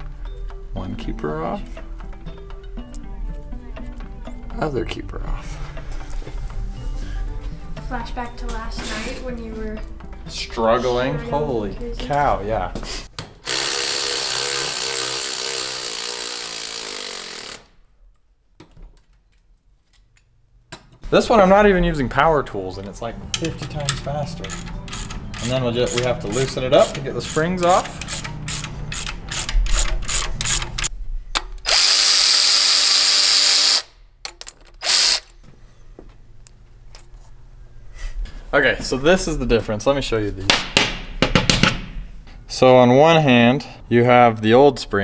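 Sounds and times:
electric ratchet whining: 0:13.4 - 0:17.8, 0:24.5 - 0:30.9, 0:31.6 - 0:33.9, 0:34.8 - 0:35.3
ratchet clicks: 0:23.8 - 0:30.9, 0:31.6 - 0:35.3
cordless drill motor whine: 0:31.7 - 0:33.9, 0:34.8 - 0:35.3.

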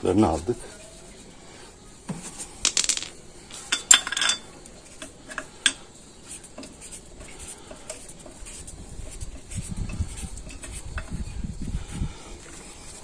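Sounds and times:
metal wheel bolts clinking: 0:03.7 - 0:05.8.

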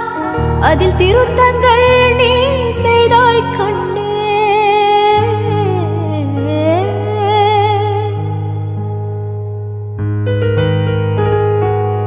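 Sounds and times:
keyboard chords: 0:00.0 - 0:12.0.

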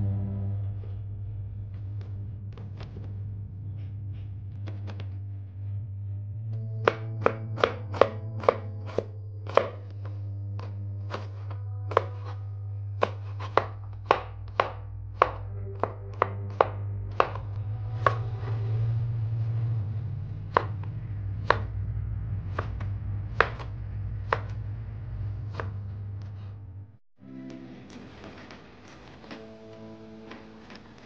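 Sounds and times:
steady low hum: 0:00.0 - 0:31.0
knife chopping on plastic board: 0:06.8 - 0:10.0, 0:10.6 - 0:12.4, 0:13.0 - 0:18.2, 0:23.4 - 0:23.7.

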